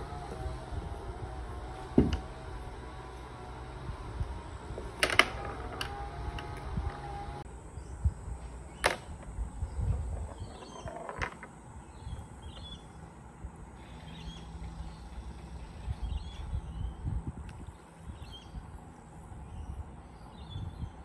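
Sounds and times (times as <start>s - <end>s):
small pool balls clicking: 10.0s - 11.6s.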